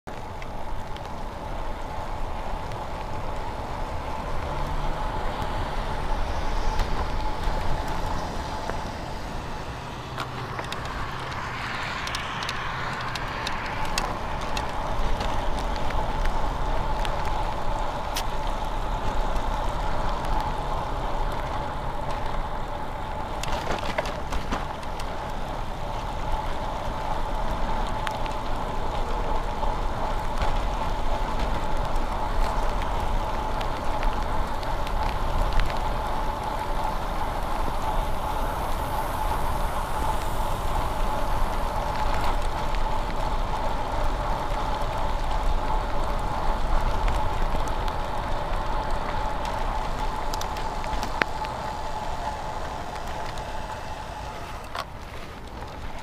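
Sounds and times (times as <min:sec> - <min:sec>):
bike tyre hiss on wet road: 0:00.1 - 0:56.0
wind rumble on microphone: 0:00.1 - 0:56.0
steady high hum: 0:32.8 - 0:55.1.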